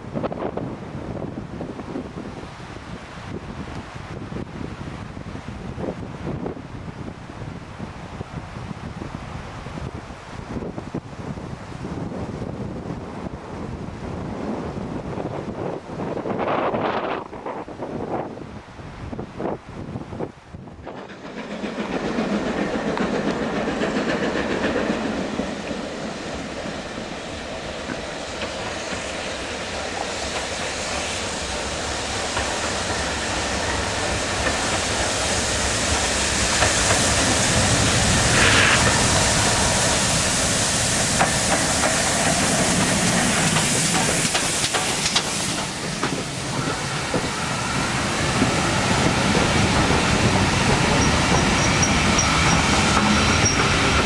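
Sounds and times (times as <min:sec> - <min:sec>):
steam locomotive approaching: 0:20.6 - 0:54.0
train wheels clicking over rail joints: 0:20.8 - 0:39.0, 0:39.6 - 0:54.0.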